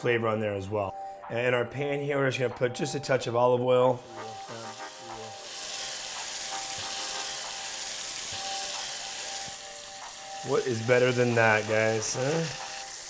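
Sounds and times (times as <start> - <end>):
vegetables sizzling in hot oil: 4.0 - 13.0.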